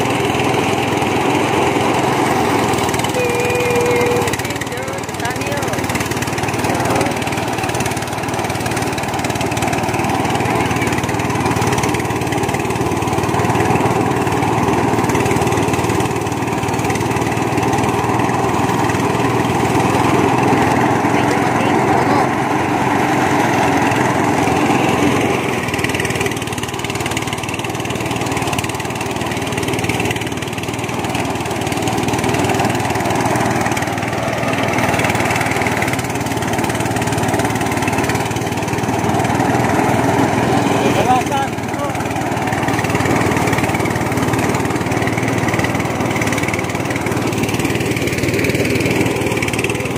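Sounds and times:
engine running: 0.0 - 49.9.

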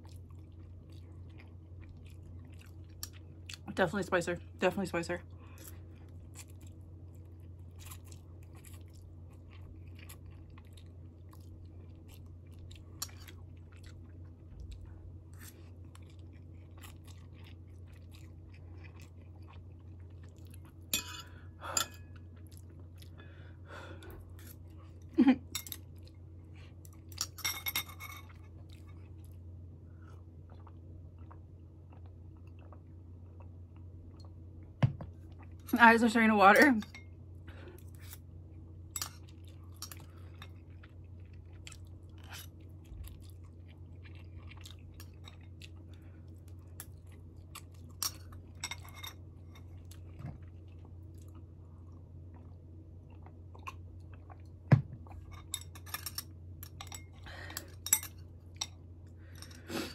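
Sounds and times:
close chewing of noodles: 0.0 - 3.7, 5.3 - 27.3, 28.3 - 34.2, 37.5 - 55.8
steady low hum: 0.0 - 59.9.

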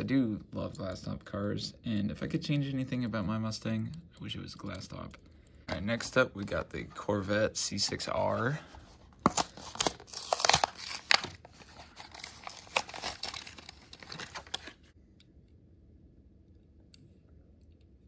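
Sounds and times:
plastic packaging crackling: 9.1 - 15.0
cardboard ripping: 9.2 - 14.7.

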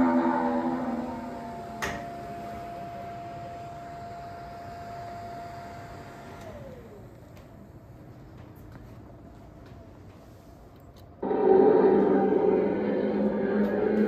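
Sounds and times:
electric whine: 0.0 - 7.5, 11.2 - 14.0.

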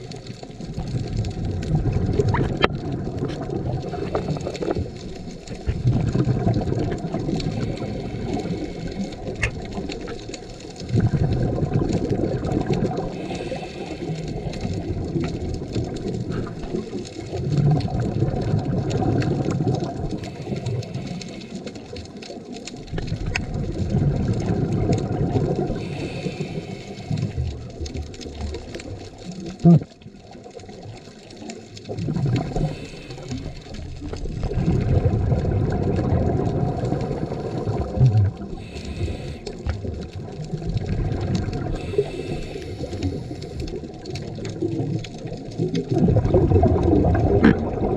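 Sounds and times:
faint clicks: 0.0 - 34.8, 35.6 - 47.9
regulator bubbles underwater: 0.0 - 47.9
muffled underwater background: 36.0 - 45.0.

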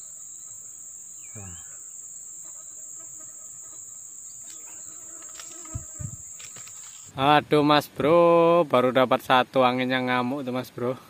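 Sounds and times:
high-pitched insect buzzing: 0.0 - 7.1.

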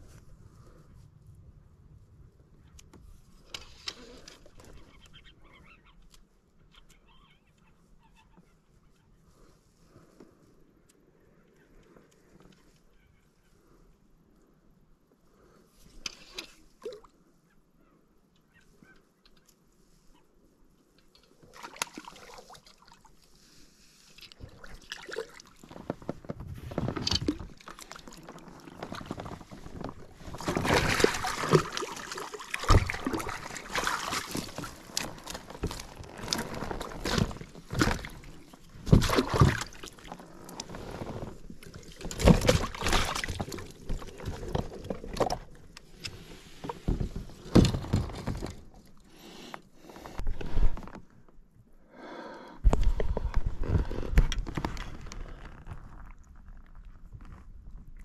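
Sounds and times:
water splashing and sloshing: 16.0 - 17.2, 21.2 - 51.1.

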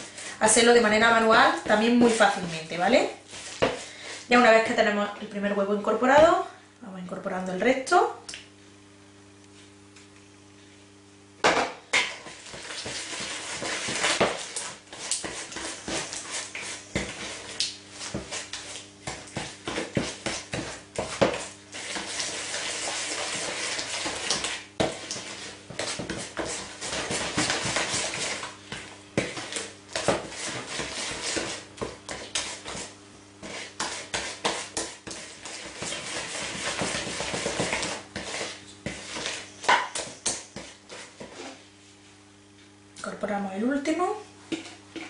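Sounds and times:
spatula scraping batter in bowl: 0.0 - 4.2, 12.0 - 41.7, 44.5 - 45.0.

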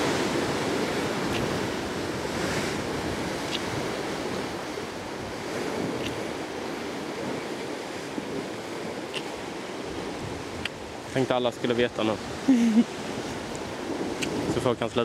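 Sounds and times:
white water rushing over rocks: 0.0 - 15.0
wind gusting on microphone: 0.0 - 15.0.

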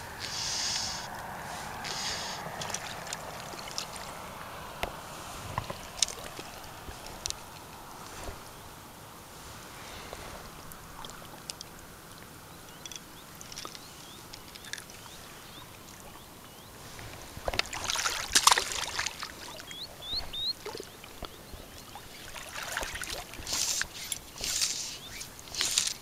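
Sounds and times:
water splashing and trickling: 0.0 - 26.0
bird chirps: 12.5 - 16.8, 19.4 - 22.4, 23.5 - 25.4.

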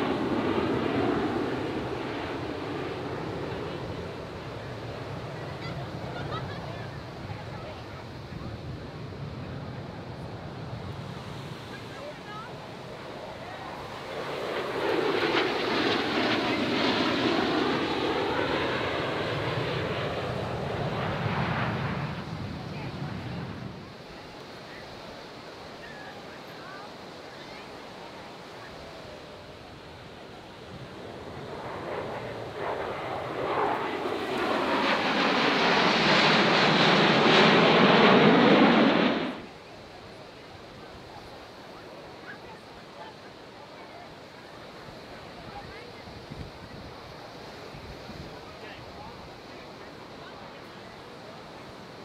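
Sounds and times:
jet roar: 0.0 - 24.6, 28.6 - 43.4.

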